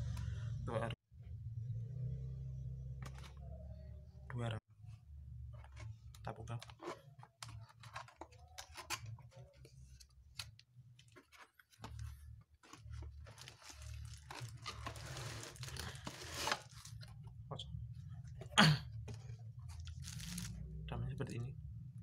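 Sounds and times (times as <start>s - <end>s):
plastic crinkling and tearing: 6.8s - 17.2s, 19.8s - 20.6s.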